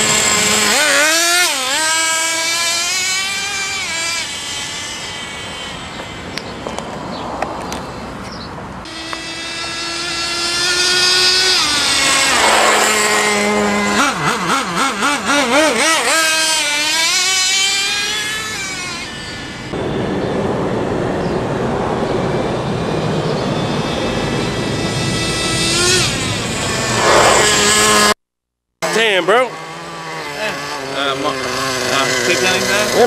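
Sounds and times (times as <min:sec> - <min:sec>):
nitro rc truck engine revving: 0:00.0 - 0:06.4, 0:08.9 - 0:19.8, 0:24.1 - 0:28.2, 0:28.8 - 0:33.0
rushing noise: 0:11.6 - 0:14.0, 0:26.2 - 0:28.1.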